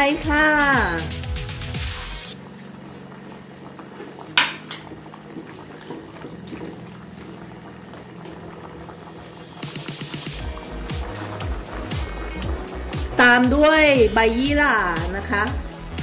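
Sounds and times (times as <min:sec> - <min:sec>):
ladle stirring boiling pot: 0:02.5 - 0:15.0.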